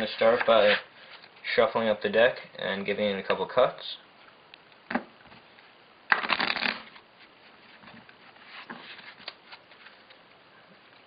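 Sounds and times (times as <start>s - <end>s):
rapid card clicks: 6.1s - 7.0s
playing cards shuffling: 6.1s - 10.2s.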